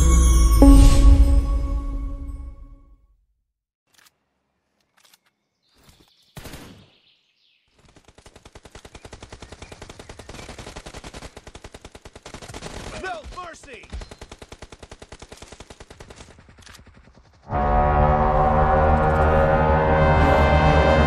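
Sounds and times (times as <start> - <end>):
automatic gunfire: 7.9 - 17.2.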